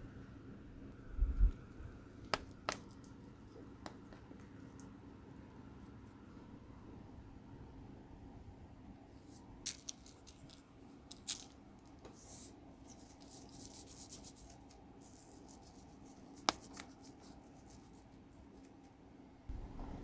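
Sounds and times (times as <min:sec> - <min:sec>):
rustling: 0:09.2 - 0:18.9
fingers rubbing meat: 0:12.0 - 0:18.9.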